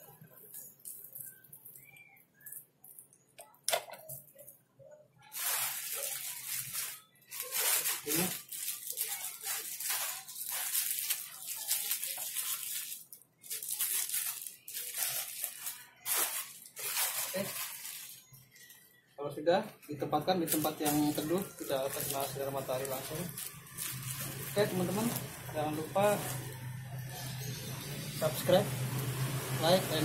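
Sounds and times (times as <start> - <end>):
plastic bag crinkling: 5.2 - 18.8, 20.4 - 27.5.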